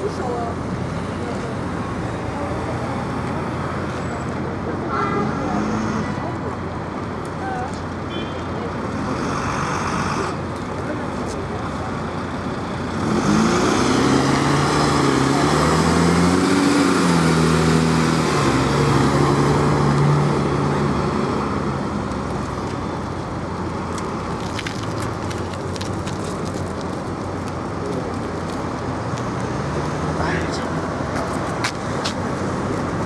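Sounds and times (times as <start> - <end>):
traffic noise: 0.0 - 33.0
diesel truck engine pulling away: 11.8 - 31.1.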